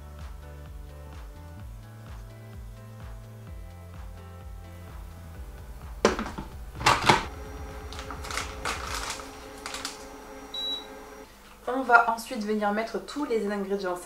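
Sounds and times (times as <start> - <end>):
quiet background music: 0.0 - 14.0
short high beep: 10.5 - 11.0.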